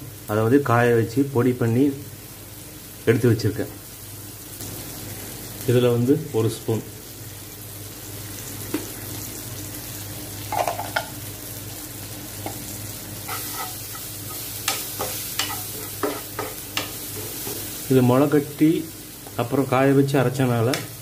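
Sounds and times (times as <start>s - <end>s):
food sizzling in a pan: 0.0s - 21.0s
spoon clinking and scraping pan: 10.5s - 11.1s, 13.3s - 17.6s.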